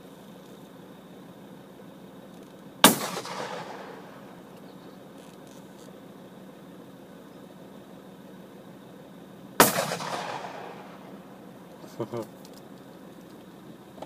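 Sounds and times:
shotgun shot: 2.8 - 4.4, 9.6 - 11.3
rolling echo: 2.8 - 4.6, 9.6 - 11.9.

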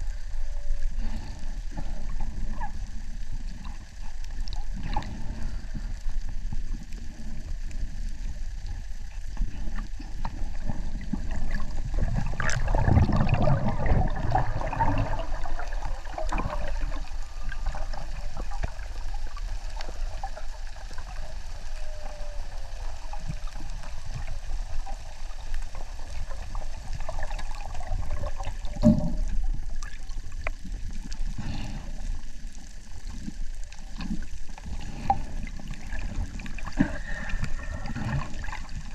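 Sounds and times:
rush of moving water: 0.0 - 38.9
underwater water sloshing: 0.0 - 38.9.

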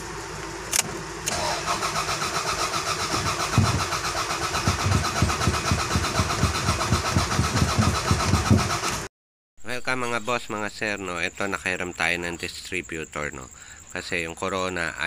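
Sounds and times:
engine cranking by starter motor: 0.0 - 9.1.

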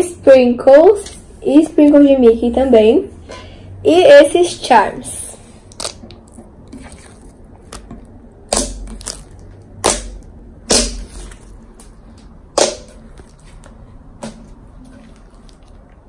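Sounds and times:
slime popping and clicking: 5.7 - 6.5, 7.7 - 13.4.

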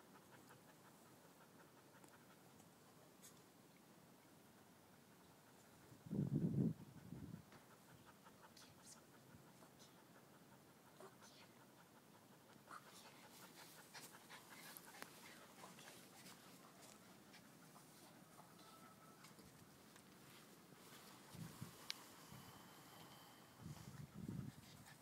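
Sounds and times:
dogs panting: 0.0 - 2.7, 6.7 - 18.7
scratchy rustles on grass: 13.0 - 22.1.

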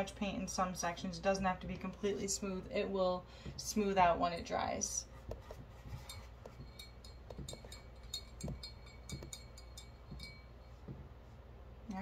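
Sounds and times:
brush clinking in glass jar: 5.8 - 10.9
soft knocks: 10.1 - 11.1.

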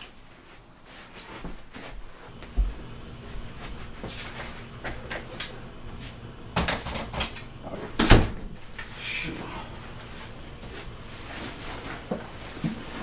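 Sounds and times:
door thump: 8.0 - 8.5.

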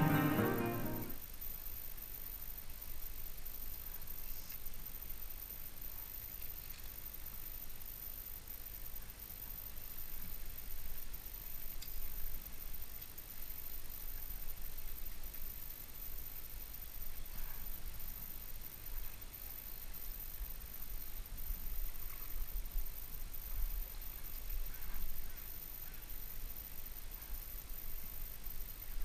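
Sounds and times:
faint ticks: 11.6 - 12.2, 12.8 - 13.4.

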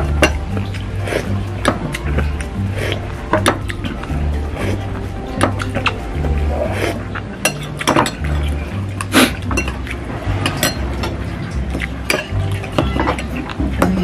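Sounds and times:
background music with bass: 0.0 - 14.0
cutlery clinking on glass bowl: 9.4 - 11.2, 11.8 - 14.0.

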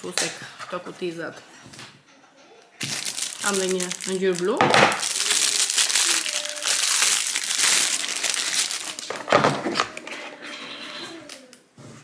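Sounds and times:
packaging crinkling: 2.8 - 10.0.

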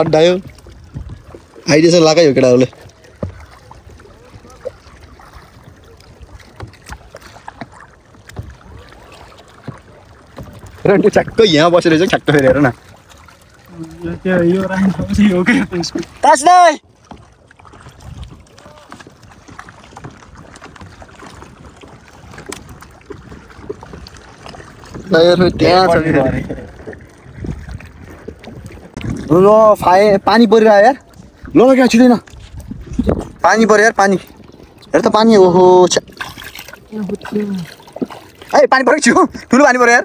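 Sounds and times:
kayak paddle splashing in water: 0.0 - 40.0
wind on microphone: 0.6 - 1.4, 21.4 - 30.2, 32.2 - 33.7.

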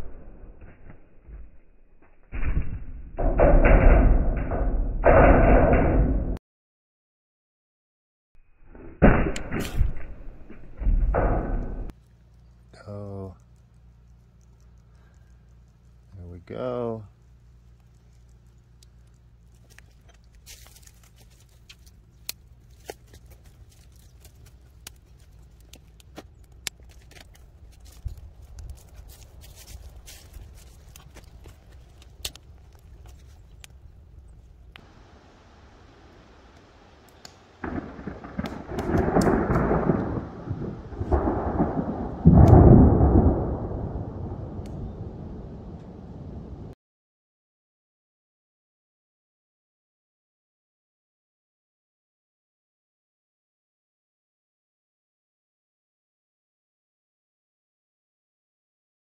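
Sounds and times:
thunder rolling: 9.0 - 11.9, 37.6 - 46.7
low steady rumble: 9.0 - 46.8.

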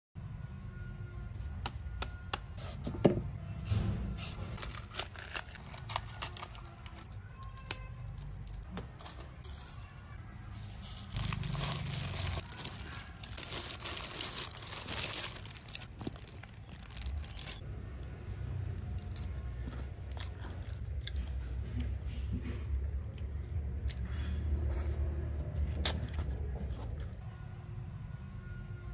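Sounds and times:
crunching crisp food: 4.5 - 8.7, 10.5 - 17.6, 23.0 - 27.2.

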